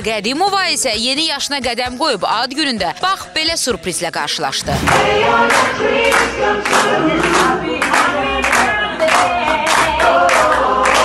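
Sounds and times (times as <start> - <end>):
voices singing together: 4.5 - 11.0
rhythmic hand clapping: 4.9 - 11.0.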